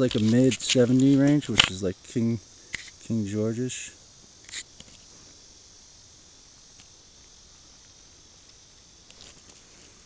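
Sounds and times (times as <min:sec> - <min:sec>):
fingers scraping in soil: 0:00.0 - 0:01.8
insects droning: 0:00.0 - 0:10.0.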